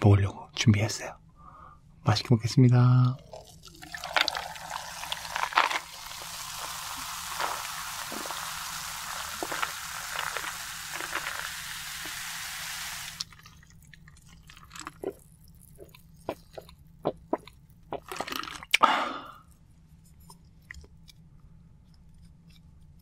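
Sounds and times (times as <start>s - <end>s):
soda fizzing over ice: 3.2s - 16.5s
person swallowing: 14.7s - 19.4s.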